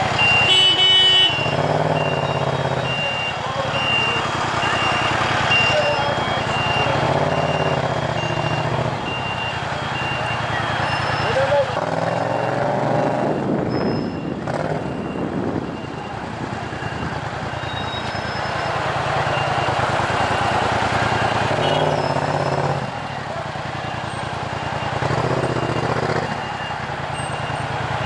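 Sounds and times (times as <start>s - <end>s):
motorcycle engine revving: 1.3s - 3.2s, 6.4s - 9.2s, 18.8s - 23.0s, 24.6s - 26.6s.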